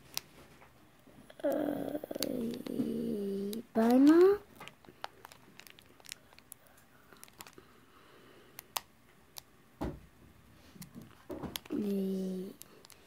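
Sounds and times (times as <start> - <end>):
foil wrapper crinkling: 3.8 - 7.7.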